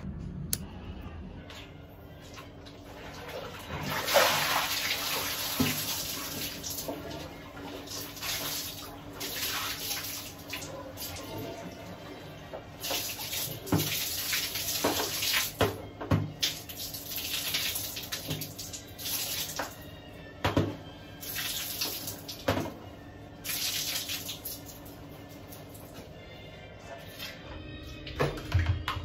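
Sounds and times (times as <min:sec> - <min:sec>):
tap water running and splashing: 0:03.1 - 0:11.8, 0:12.5 - 0:19.8, 0:21.2 - 0:22.8, 0:23.4 - 0:24.9.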